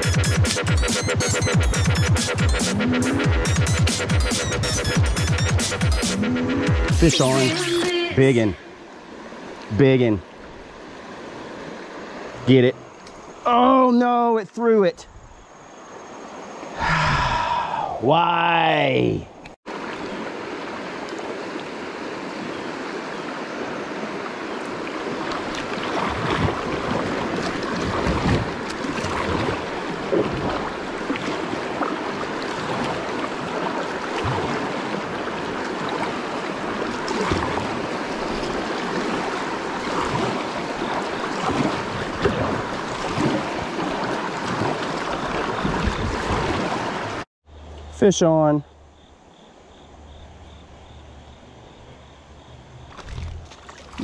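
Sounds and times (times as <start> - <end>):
creek water rushing: 0.0 - 15.0, 15.6 - 47.3, 52.9 - 54.0
paddle splashing in water: 19.7 - 47.2, 52.9 - 54.0.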